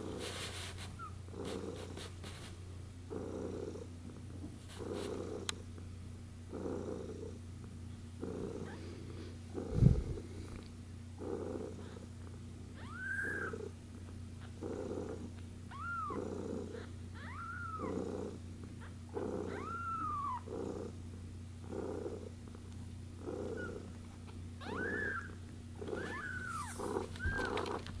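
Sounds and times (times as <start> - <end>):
cat purring: 0.0 - 2.4, 3.1 - 28.0
kitten cheeping: 12.8 - 13.6, 15.7 - 16.2, 16.8 - 18.0, 18.8 - 20.4, 24.6 - 27.6.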